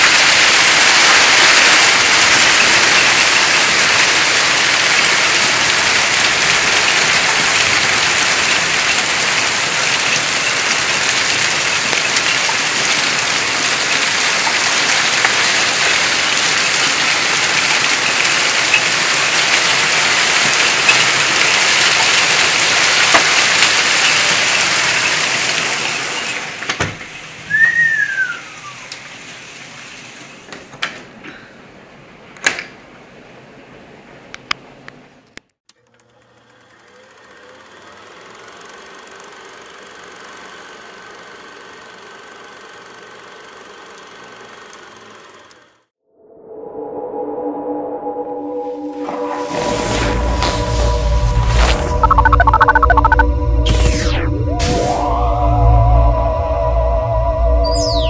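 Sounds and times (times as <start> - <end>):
heavy rain and hail: 0.0 - 27.6.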